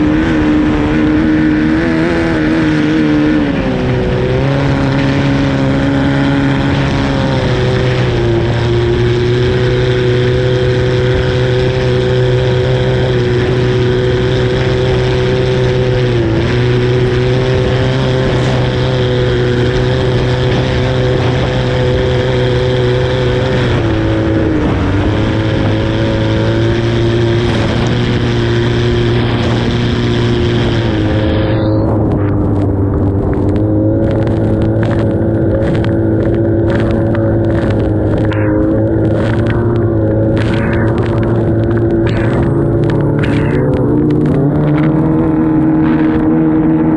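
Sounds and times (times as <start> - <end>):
racing boat engine: 0.0 - 46.9
short crackles: 32.2 - 44.9.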